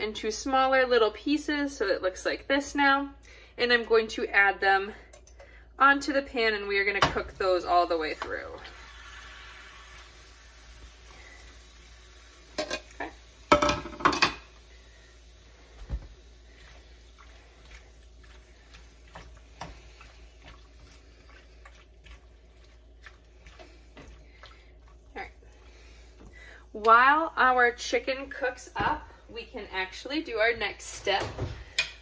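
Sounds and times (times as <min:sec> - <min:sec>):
cookware and utensils clattering: 0:12.5 - 0:14.6.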